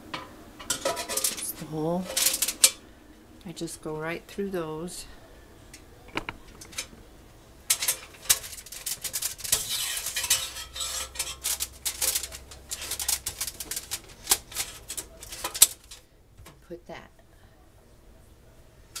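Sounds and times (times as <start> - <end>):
aluminium foil crinkling and tearing: 0.7 - 2.8, 7.7 - 16.1.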